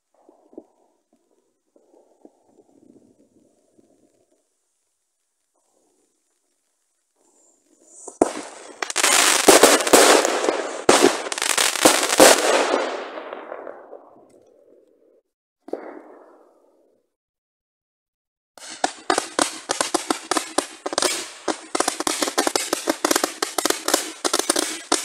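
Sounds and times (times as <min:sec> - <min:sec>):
fireworks bangs and crackling: 0:05.4 - 0:14.5, 0:18.6 - 0:25.0.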